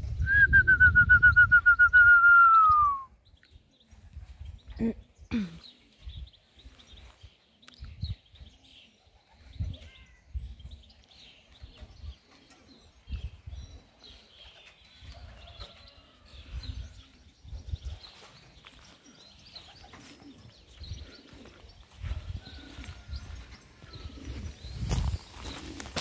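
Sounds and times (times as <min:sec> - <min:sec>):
pigeons cooing: 0:08.4 - 0:26.0.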